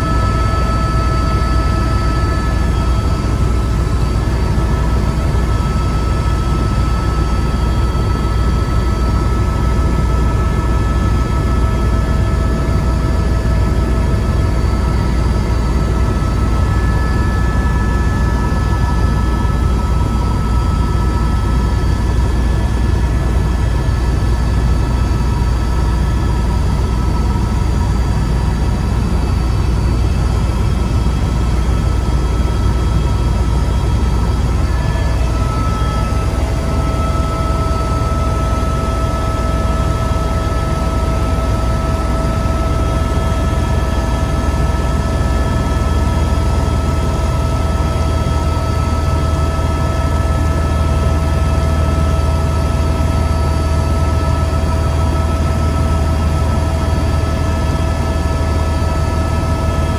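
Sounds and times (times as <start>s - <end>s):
helicopter cabin rumble: 0.0s - 59.9s
thin whining tones: 32.3s - 43.5s.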